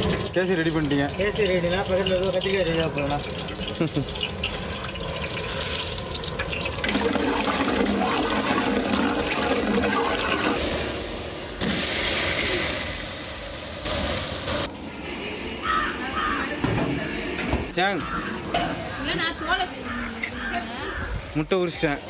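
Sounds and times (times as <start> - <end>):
loud sizzle of vegetables in oil: 0.0 - 8.4, 9.0 - 14.7
spices sizzling in hot oil: 0.0 - 14.7.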